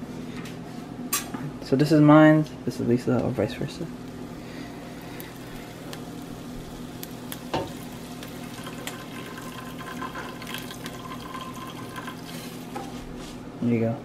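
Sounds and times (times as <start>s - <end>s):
water trickling onto noodles: 5.1s - 12.7s.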